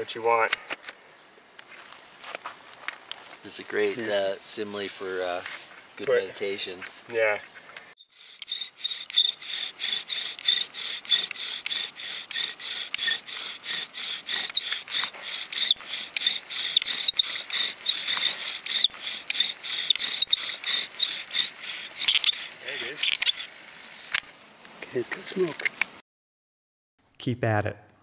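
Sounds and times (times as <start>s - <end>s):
high squeak of bow drill: 8.0s - 24.2s
wooden spindle grinding rhythmic rasp: 8.0s - 24.3s.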